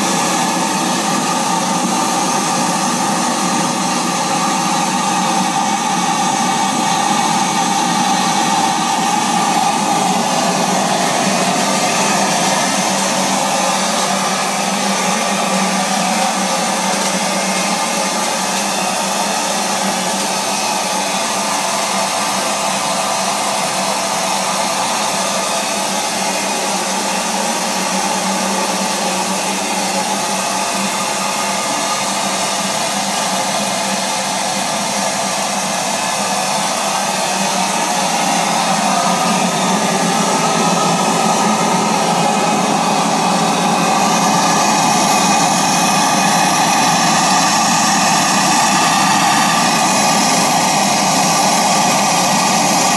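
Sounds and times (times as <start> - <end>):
steam engine hissing: 0.0 - 52.9.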